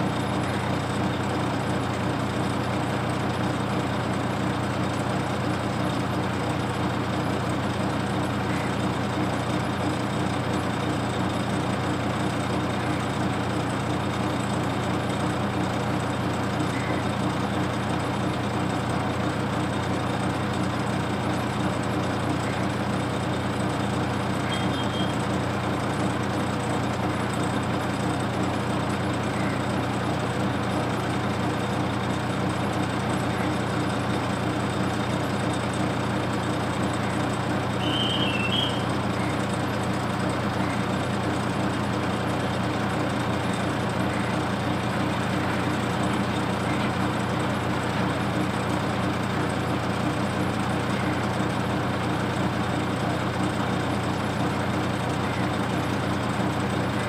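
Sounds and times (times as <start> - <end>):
heavy vehicle engine humming: 0.0 - 57.0
brief high chirp: 37.8 - 38.9.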